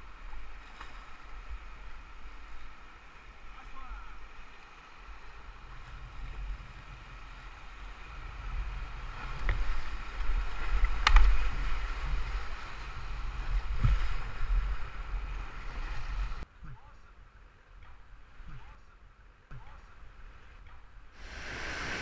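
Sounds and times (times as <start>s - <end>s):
sharp knocks and splashes: 10.2s - 11.6s
whitewater rushing: 21.2s - 22.0s.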